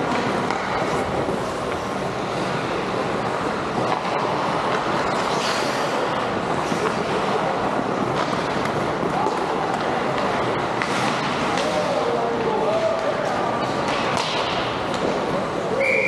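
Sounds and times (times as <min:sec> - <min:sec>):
skates on ice rumbling: 0:00.0 - 0:15.6
hockey stick clicks: 0:00.1 - 0:00.9.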